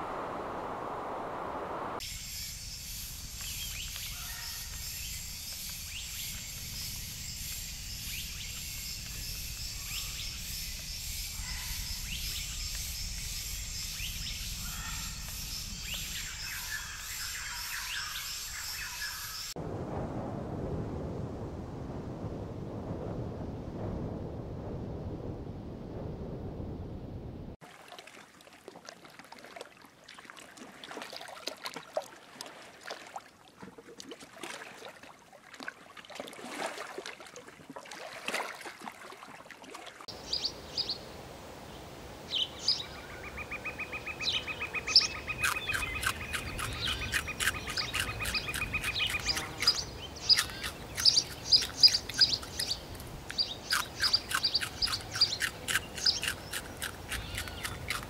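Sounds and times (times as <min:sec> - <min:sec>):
sharp high chirping calls: 0:42.4 - 0:58.0.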